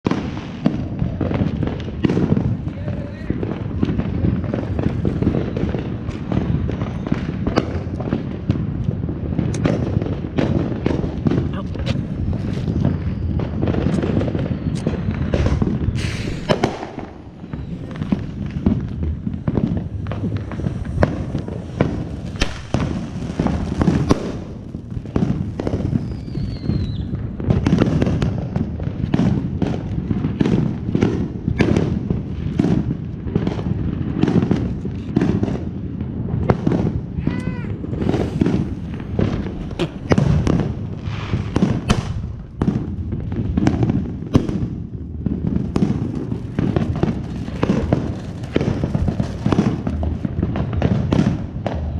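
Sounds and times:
fireworks banging and crackling: 0.0 - 51.9
firework falling whistle: 12.1 - 28.3, 36.8 - 42.8.

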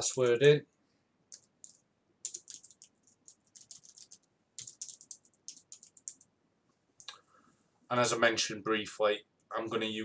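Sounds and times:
typing on computer keyboard: 1.3 - 6.3.

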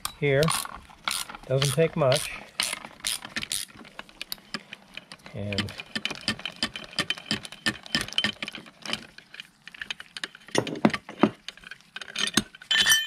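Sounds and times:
sharp ringing metal clinks: 12.7 - 13.0.

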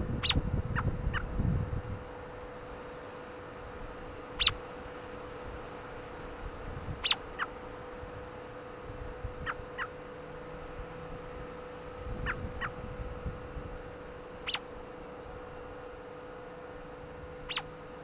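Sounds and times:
wind buffeting microphone: 0.0 - 2.2, 10.7 - 14.1
bird chirping: 0.2 - 1.3, 4.4 - 4.6, 7.0 - 7.5, 14.4 - 14.7, 17.4 - 17.8.

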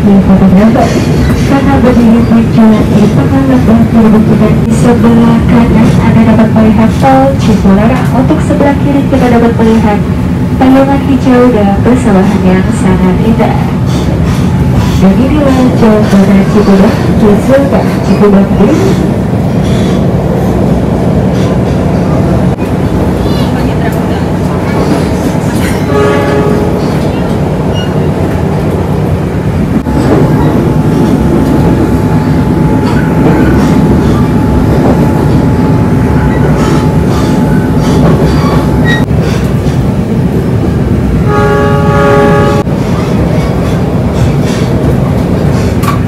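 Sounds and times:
train wheels rumbling on track: 0.0 - 46.0
train horn: 25.9 - 26.8, 41.2 - 42.7.

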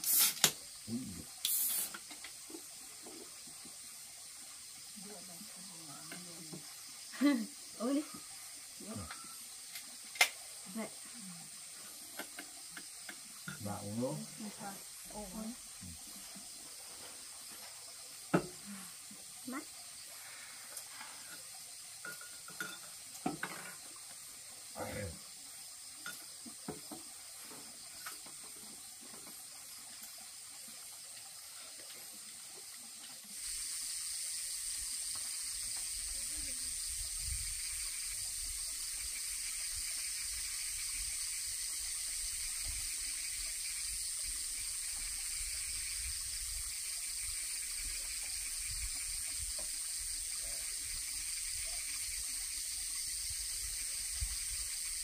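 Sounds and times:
night insects hissing: 0.0 - 55.0
dishes clinking: 22.0 - 23.8.

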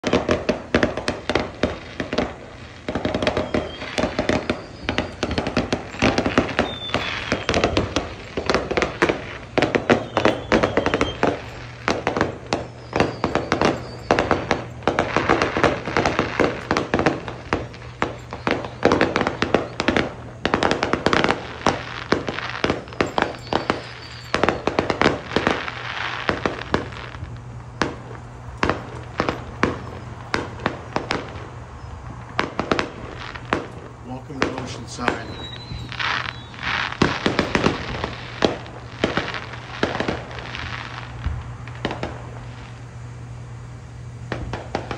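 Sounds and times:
faint fireworks whistling: 0.0 - 44.9
fireworks bangs and crackles: 0.0 - 44.9.

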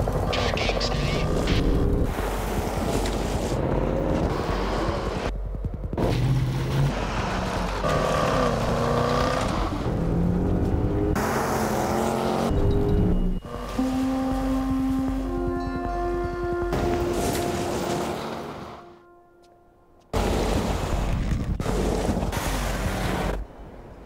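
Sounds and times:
background music: 12.6 - 20.1.

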